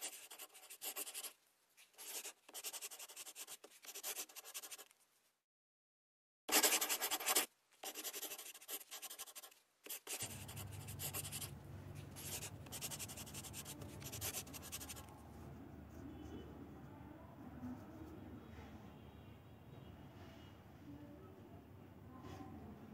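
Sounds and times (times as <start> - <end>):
steady low hum: 10.2 - 15.9.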